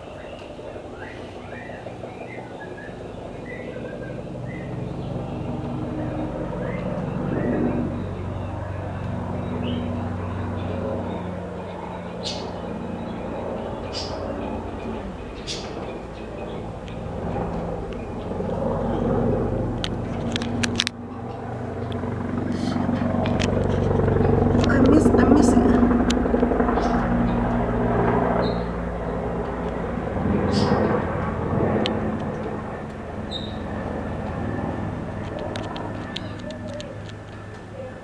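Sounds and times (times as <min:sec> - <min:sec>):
bird chirping: 0:00.0 - 0:19.2, 0:28.4 - 0:29.2, 0:30.5 - 0:31.0, 0:33.2 - 0:33.7
helicopter rotor beating: 0:00.0 - 0:38.0.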